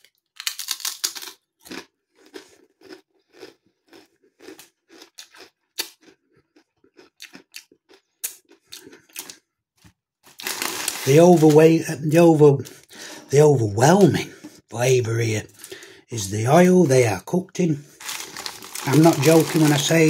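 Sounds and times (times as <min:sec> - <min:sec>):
crisp crunching and chewing: 0:00.0 - 0:11.8, 0:17.9 - 0:20.0.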